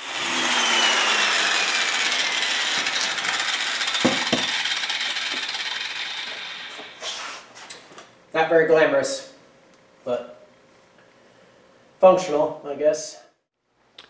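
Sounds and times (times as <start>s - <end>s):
angle grinder winding down: 0.0s - 7.0s
knocks: 4.0s - 4.6s.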